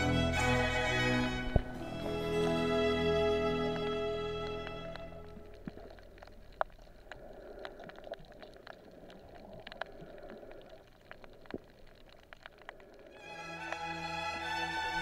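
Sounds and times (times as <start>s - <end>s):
underwater clicks and crackles: 1.4s - 2.6s, 3.6s - 14.0s.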